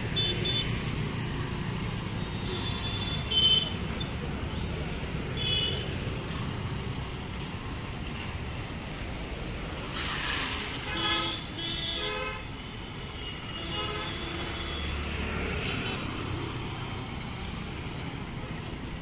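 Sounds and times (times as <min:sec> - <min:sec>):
street traffic: 0:00.0 - 0:19.0
vehicle horns tooting: 0:00.1 - 0:00.8, 0:02.2 - 0:03.8, 0:10.8 - 0:12.5, 0:13.2 - 0:15.1.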